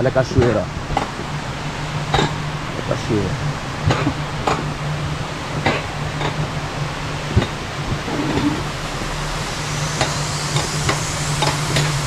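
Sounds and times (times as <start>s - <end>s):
sled on metal rail humming: 5.4s - 9.2s.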